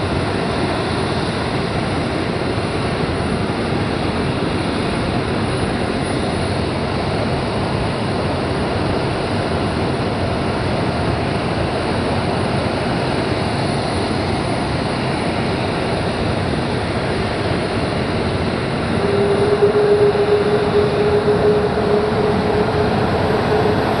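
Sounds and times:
aircraft engine noise: 0.0 - 24.0
steady hum: 15.5 - 24.0.

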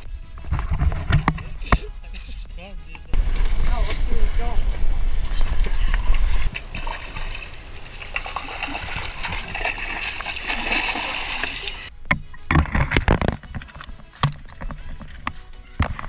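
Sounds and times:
heavy splashes and thumps: 0.3 - 1.9, 5.2 - 16.0
seawater sloshing: 3.2 - 16.0.

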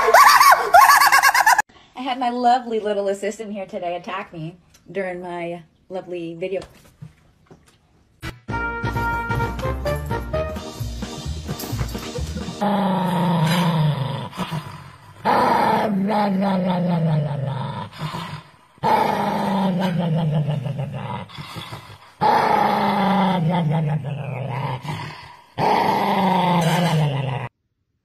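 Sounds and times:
dog growling: 12.1 - 27.5.

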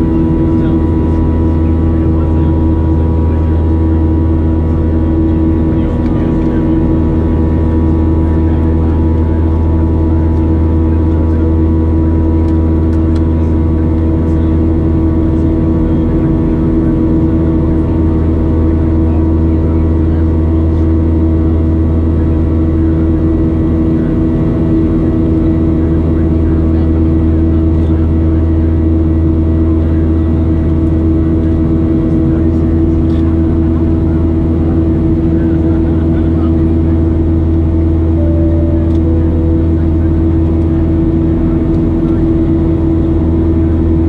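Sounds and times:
jet engine cabin drone: 0.0 - 44.0.

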